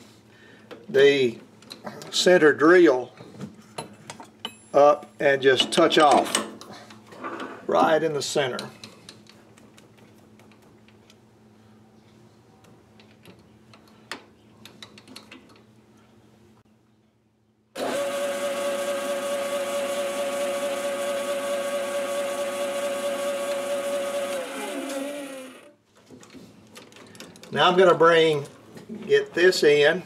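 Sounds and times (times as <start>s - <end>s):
metal lathe motor whining: 17.8s - 25.7s.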